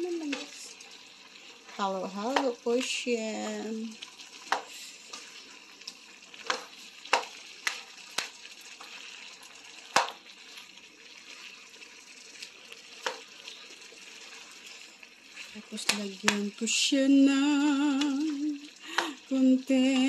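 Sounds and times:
food sizzling in frying pan: 0.0 - 20.0
spatula knocking against pan: 4.5 - 4.7, 6.4 - 8.3.

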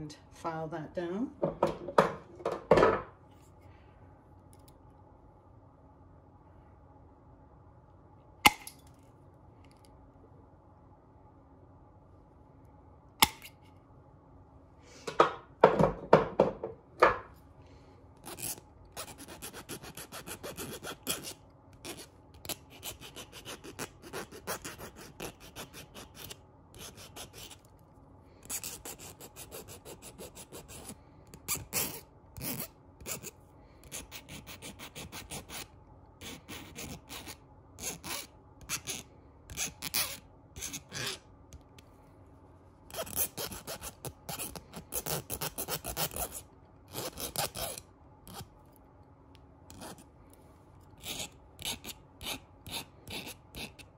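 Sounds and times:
tin snips cutting wire: 13.2 - 13.6
file rasping on metal wire: 18.2 - 27.6, 28.4 - 33.3, 33.9 - 41.2, 42.9 - 48.5, 49.7 - 50.0, 51.0 - 53.9.

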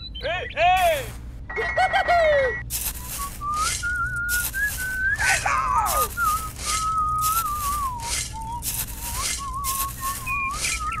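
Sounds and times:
whistled melody: 2.9 - 11.0.

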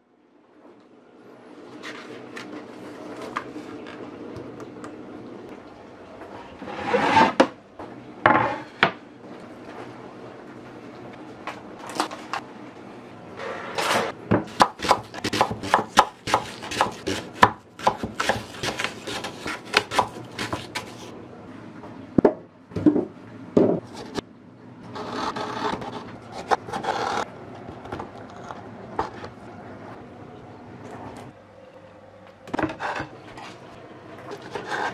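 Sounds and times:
knife slicing and scraping: 15.1 - 21.1.

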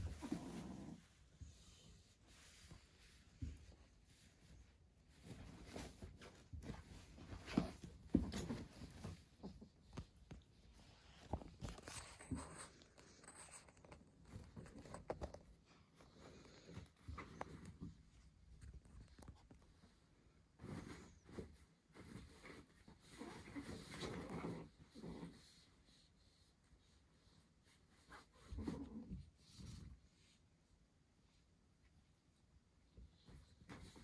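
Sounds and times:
soft knocks of paws: 0.0 - 25.3.

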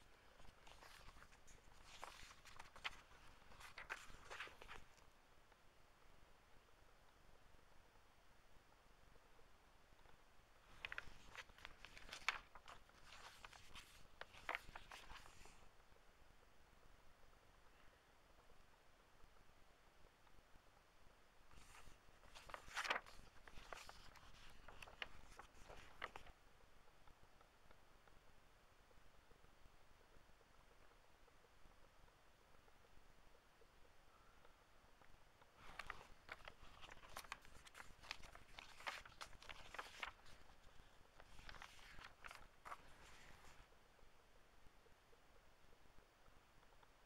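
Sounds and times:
book pages turning: 0.0 - 5.1, 10.6 - 15.7, 21.5 - 26.4, 35.6 - 43.7.

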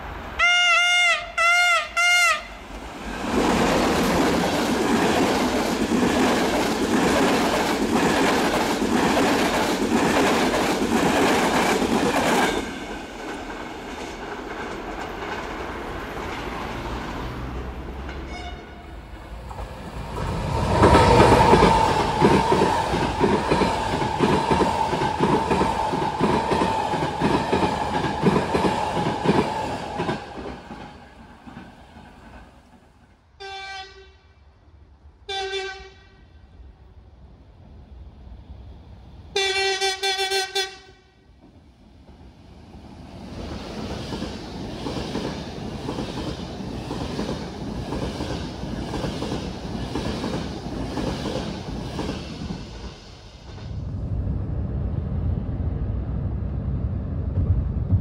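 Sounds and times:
train horn: 0.4 - 2.6, 18.2 - 19.0, 33.4 - 34.4, 35.3 - 36.4, 39.4 - 41.3
train wheels clickety-clack: 3.2 - 18.6, 19.4 - 33.2, 41.4 - 53.8.

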